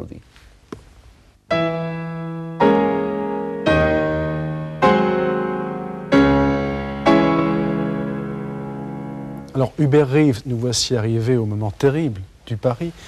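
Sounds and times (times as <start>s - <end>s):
slow piano chords: 1.5s - 10.2s.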